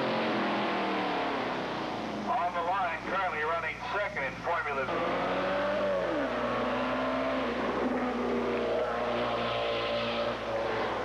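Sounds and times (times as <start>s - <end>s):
race car engine revving: 0.0s - 2.4s, 4.3s - 11.0s.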